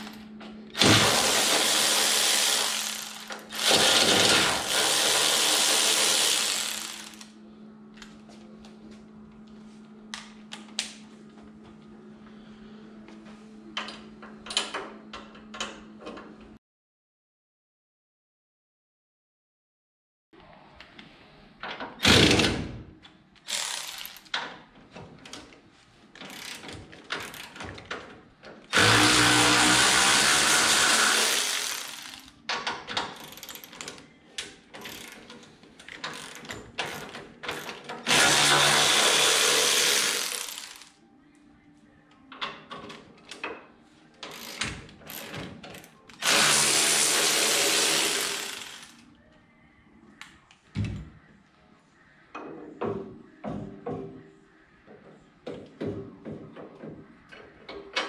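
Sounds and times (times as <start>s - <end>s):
power tool spinning a nut: 0.8s - 7.3s, 23.5s - 24.2s, 28.7s - 32.3s, 36.1s - 40.9s, 46.2s - 49.0s.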